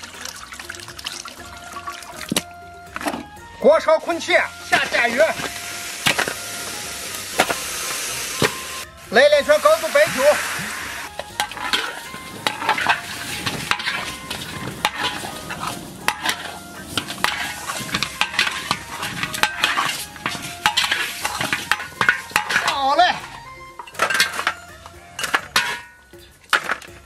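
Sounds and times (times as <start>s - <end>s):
light sizzle: 4.2s - 27.0s
wavering squeal: 4.4s - 26.0s
metal spatula scraping a wok: 4.5s - 27.0s.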